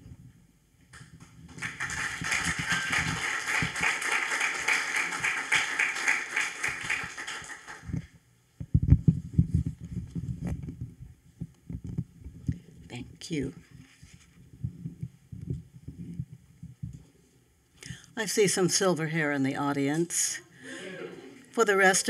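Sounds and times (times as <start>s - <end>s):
audience applauding: 1.5s - 8.1s.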